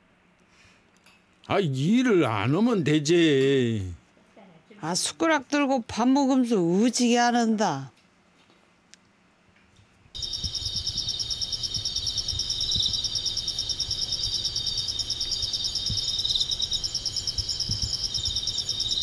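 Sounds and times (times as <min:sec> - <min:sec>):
insects trilling: 0:10.2 - 0:19.0.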